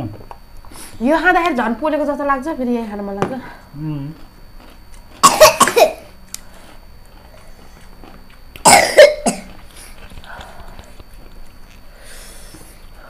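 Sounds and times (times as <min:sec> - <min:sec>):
person coughing: 0:05.2 - 0:06.1, 0:08.6 - 0:09.5.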